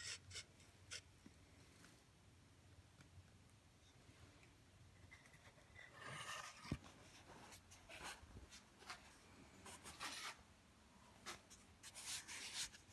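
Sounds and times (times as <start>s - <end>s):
rubbing and scratching: 5.0s - 10.5s, 11.2s - 12.9s.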